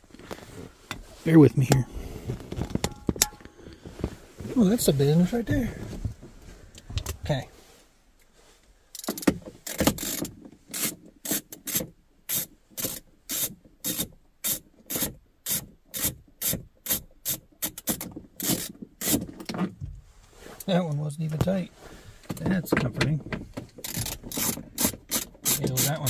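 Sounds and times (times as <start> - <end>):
socket ratchet clicking: 9.0 - 19.2, 23.8 - 26.0.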